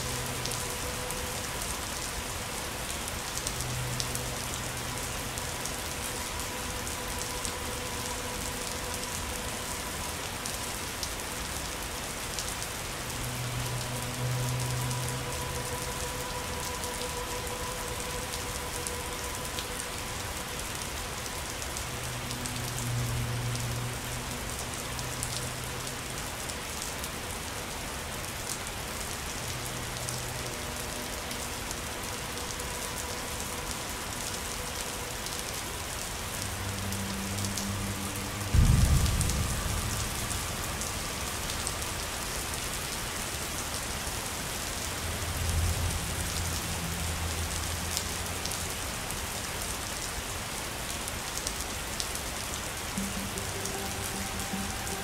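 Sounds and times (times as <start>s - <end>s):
steady rain falling: 0.0s - 55.0s
soft low thunder rumbles: 38.5s - 41.1s
loud low thunder boom: 38.6s - 40.2s.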